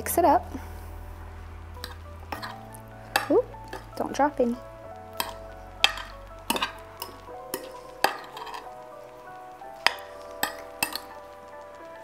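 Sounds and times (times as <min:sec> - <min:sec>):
soft background music: 0:00.0 - 0:12.0
vegetables tossed in a glass dish: 0:01.8 - 0:04.0, 0:05.1 - 0:08.8.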